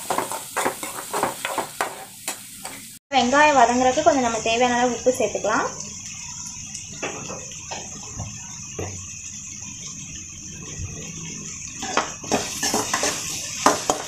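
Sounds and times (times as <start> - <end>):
spoon scraping a pan: 0.0 - 2.9, 11.8 - 14.0
onions sizzling in oil: 0.0 - 14.0.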